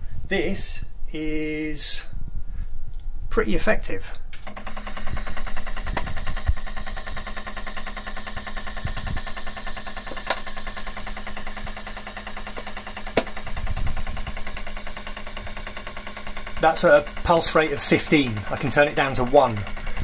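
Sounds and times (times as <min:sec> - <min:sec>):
steady hum: 0:00.0 - 0:20.0
fuel pump ticking rapidly: 0:04.4 - 0:20.0
sharp clicks: 0:10.0 - 0:20.0.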